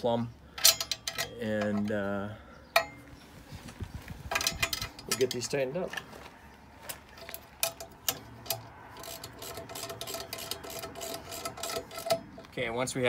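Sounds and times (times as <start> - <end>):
ratchet wrench clicking: 7.6 - 12.2.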